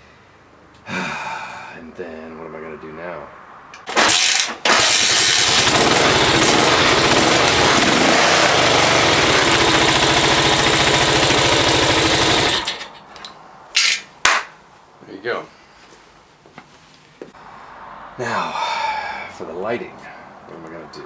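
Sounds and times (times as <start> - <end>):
motorcycle kick-start: 3.8 - 13.0
motorcycle engine running loudly: 4.7 - 12.8.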